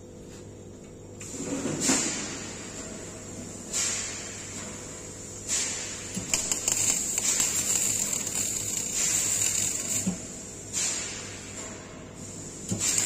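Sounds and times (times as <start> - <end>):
gas hiss: 5.1 - 11.4
welding arc crackling: 5.6 - 11.1, 12.7 - 13.0.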